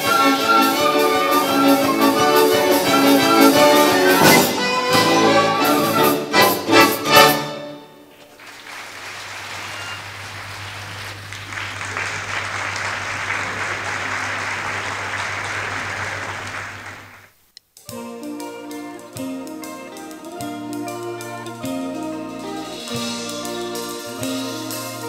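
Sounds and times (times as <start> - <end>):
audience applauding: 0.0 - 6.6, 8.1 - 17.4
music playing: 0.0 - 8.1, 17.9 - 25.0
orchestra chord: 0.0 - 8.1.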